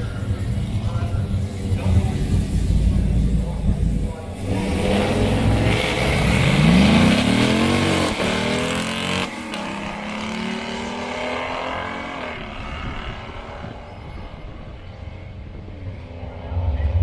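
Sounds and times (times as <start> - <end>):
car engine accelerating hard: 0.0 - 14.3.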